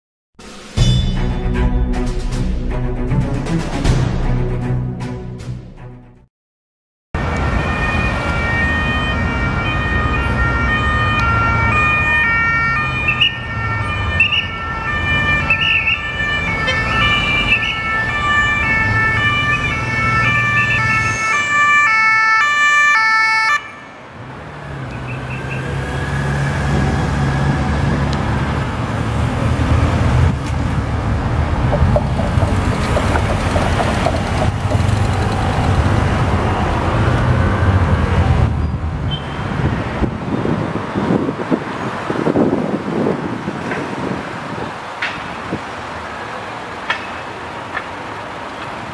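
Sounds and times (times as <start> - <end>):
police sirens alternating tones: 7.2 - 24.1
vehicle engines and road noise: 7.2 - 48.9
motorcycles passing: 24.2 - 39.0.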